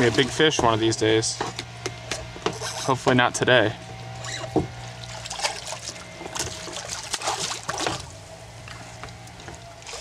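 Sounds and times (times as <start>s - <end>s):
fish splashing in water: 4.8s - 10.0s.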